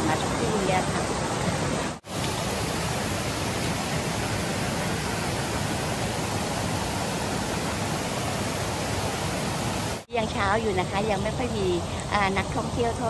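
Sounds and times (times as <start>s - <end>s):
stream rushing over rocks: 0.0s - 10.1s.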